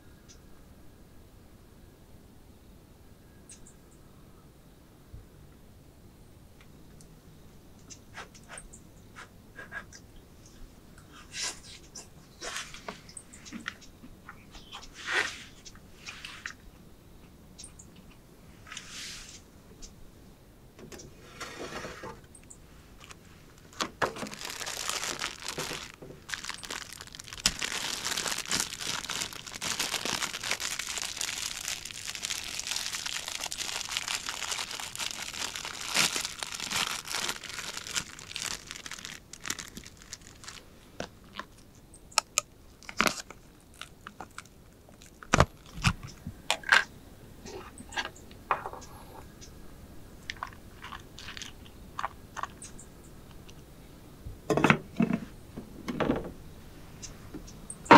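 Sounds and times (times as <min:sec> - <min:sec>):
plastic packet crinkling and tearing: 0:23.0 - 0:41.6, 0:42.2 - 0:46.1, 0:50.3 - 0:52.5.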